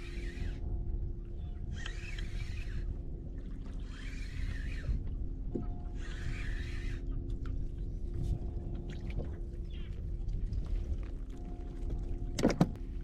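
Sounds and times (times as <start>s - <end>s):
fishing reel whirring: 0.0s - 0.8s, 1.6s - 3.0s, 3.8s - 7.2s
wind rumble on microphone: 0.0s - 13.0s.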